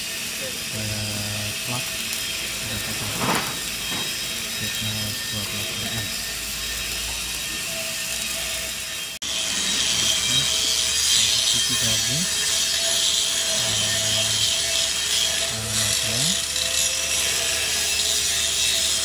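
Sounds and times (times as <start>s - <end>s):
hissing crackling workshop noise: 0.0s - 19.0s
low humming tones: 0.4s - 17.8s.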